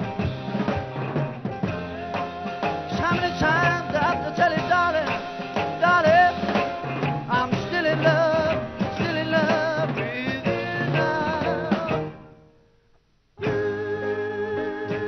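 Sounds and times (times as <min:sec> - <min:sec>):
drum kit: 0:00.0 - 0:12.4, 0:13.4 - 0:15.0
electric guitar: 0:00.0 - 0:12.5, 0:13.4 - 0:15.0
man singing: 0:01.7 - 0:12.2, 0:13.4 - 0:15.0.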